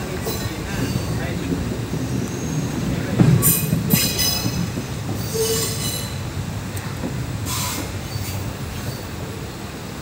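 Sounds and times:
train rumbling: 0.0 - 10.0
train wheels squealing: 2.2 - 6.3, 7.4 - 9.2.

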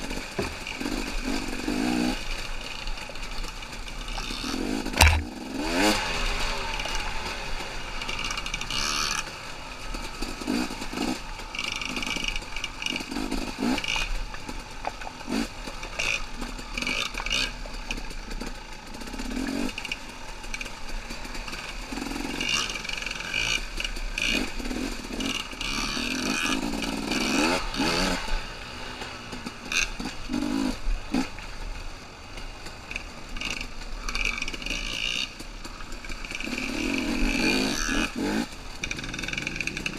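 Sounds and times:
dirt bike engine revving: 0.0 - 31.8, 32.4 - 39.9
bike knocking and clattering: 3.0 - 5.7.

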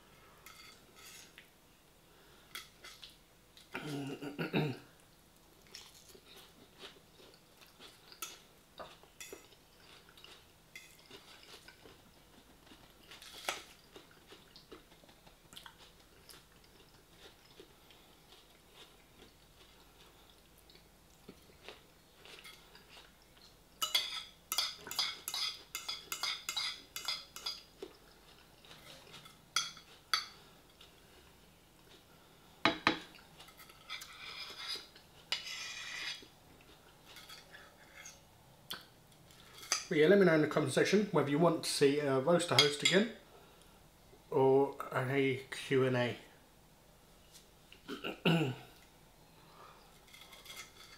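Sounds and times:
chewing: 5.4 - 23.5
metal fork clinking on a dish: 23.8 - 27.6.

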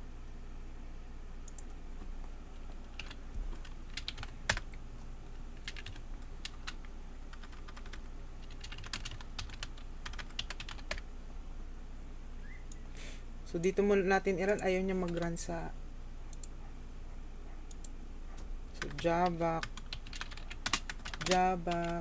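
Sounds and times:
steady low hum: 0.0 - 22.0
computer keyboard typing: 2.6 - 4.8, 5.6 - 11.0, 14.4 - 15.4, 18.8 - 22.0.

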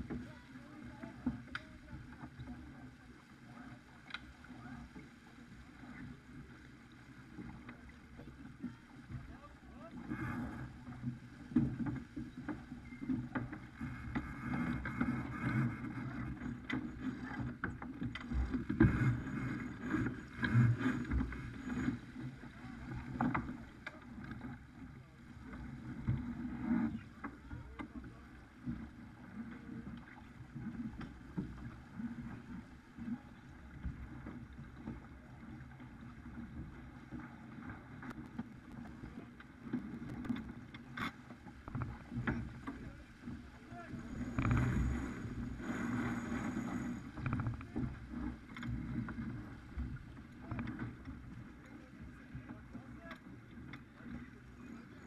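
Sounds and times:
wind and water rushing: 0.0 - 54.8
crew and rigging clatters: 10.0 - 24.7, 38.0 - 51.8.

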